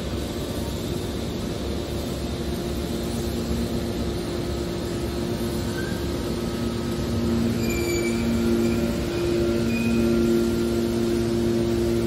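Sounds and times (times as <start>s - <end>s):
hydraulic baler humming: 2.2s - 12.0s
metal squeals: 5.6s - 6.1s, 7.3s - 11.0s.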